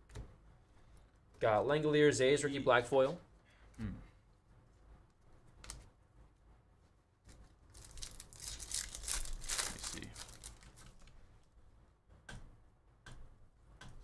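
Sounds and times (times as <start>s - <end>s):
wrapper tearing and crinkling: 7.4s - 11.2s.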